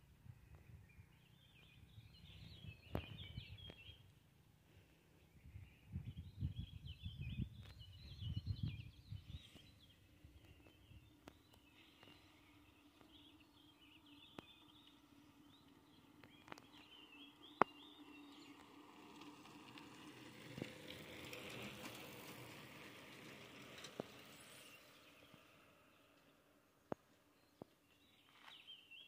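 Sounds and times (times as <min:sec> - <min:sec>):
small birds chirping: 0:00.3 - 0:19.9, 0:23.8 - 0:29.0
bicycles passing by: 0:08.0 - 0:26.5.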